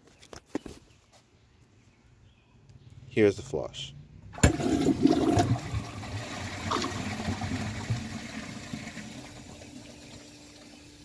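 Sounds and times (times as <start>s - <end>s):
toilet cistern refilling: 4.4s - 11.0s
toilet flushing: 4.4s - 11.0s.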